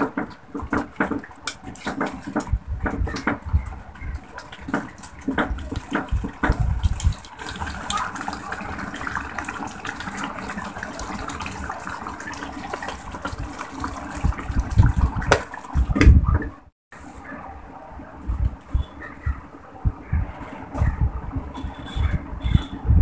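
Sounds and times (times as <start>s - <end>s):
curry simmering and bubbling: 0.0s - 16.7s
spatula scraping a pot: 20.4s - 23.0s.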